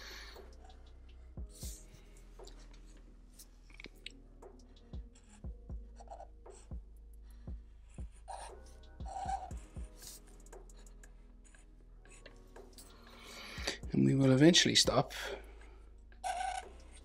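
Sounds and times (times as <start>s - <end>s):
marker scratching on paper: 5.0s - 6.8s, 7.8s - 13.0s.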